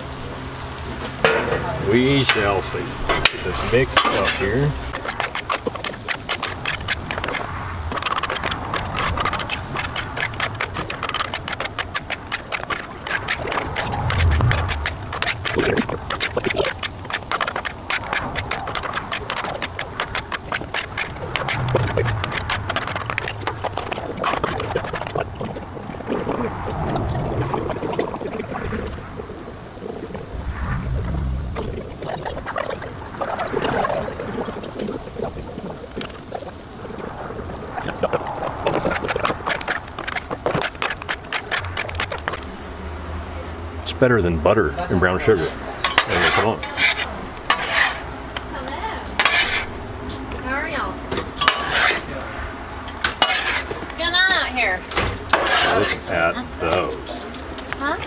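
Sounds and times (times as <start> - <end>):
glaze bubbling and sizzling on griddle: 0.0 - 58.0
metal spatulas scraping a griddle: 2.3 - 24.6, 45.8 - 48.1, 49.2 - 49.8, 51.4 - 52.2, 53.0 - 53.8, 55.0 - 56.2
wind on microphone: 2.9 - 40.8.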